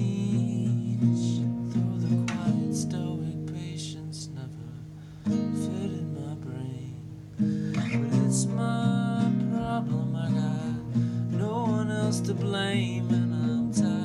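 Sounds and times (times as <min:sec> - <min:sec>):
classical guitar strummed: 0:00.0 - 0:14.0.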